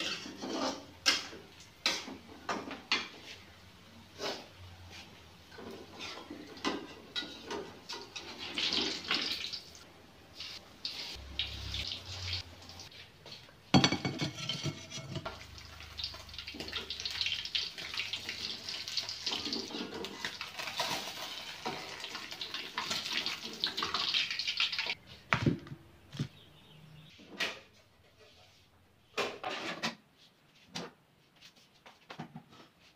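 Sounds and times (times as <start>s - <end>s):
metal spatula scraping a wok: 0.0s - 2.1s, 14.2s - 15.3s
food sizzling in hot oil: 7.9s - 12.9s, 15.1s - 25.0s.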